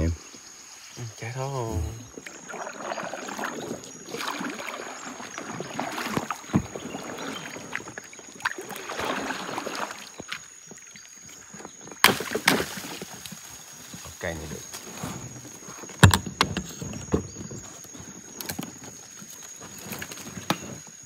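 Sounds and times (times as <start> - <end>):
shallow water splashing: 1.6 - 15.7
knocks and rustles: 11.9 - 20.8.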